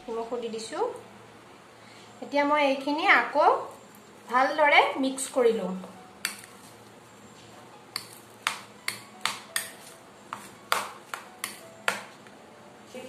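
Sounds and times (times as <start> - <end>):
steel spoon clinking on metal bowl: 6.2 - 6.6.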